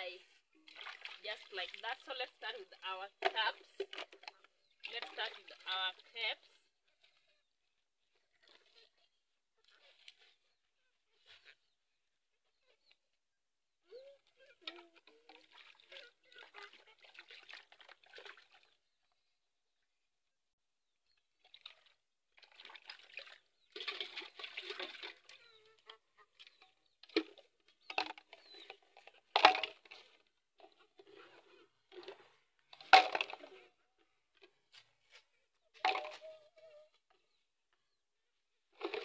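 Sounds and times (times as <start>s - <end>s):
water splashing in a basin: 0.6s - 7.2s, 14.0s - 19.0s, 21.2s - 33.7s, 35.8s - 36.3s, 38.8s - 39.0s
cups knocking against basin: 26.5s - 30.0s, 30.6s - 33.5s, 35.8s - 36.3s.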